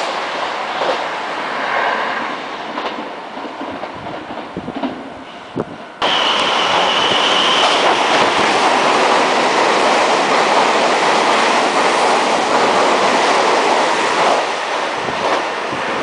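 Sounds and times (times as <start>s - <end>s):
train wheels rushing on rail: 0.0s - 16.0s.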